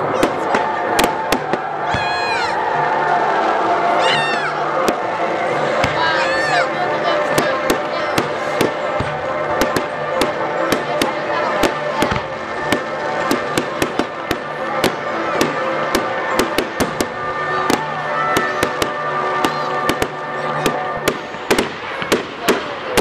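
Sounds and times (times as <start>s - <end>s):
fireworks bangs and crackles: 0.0s - 23.0s.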